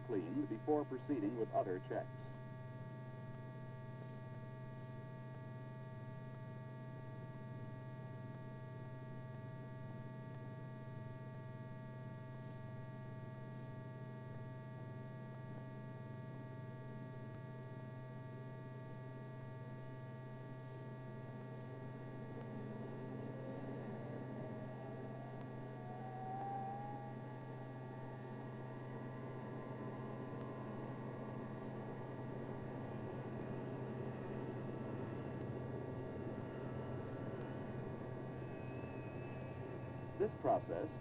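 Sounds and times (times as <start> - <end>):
low electrical hum: 0.0 - 41.0
faint high-pitched tones: 17.3 - 41.0.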